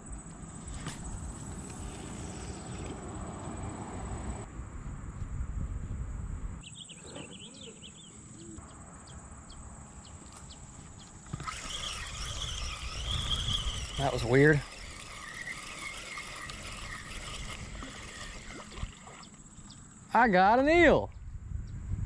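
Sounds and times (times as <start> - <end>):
wind rumble: 0.0 - 6.7, 10.6 - 15.2, 21.0 - 22.0
fishing reel cranking: 0.7 - 3.5, 10.7 - 19.9
bird chirping: 6.6 - 20.0.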